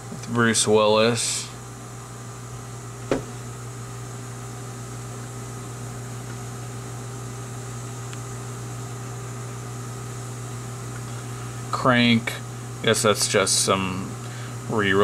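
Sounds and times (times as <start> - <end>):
low electrical hum: 0.0 - 15.0.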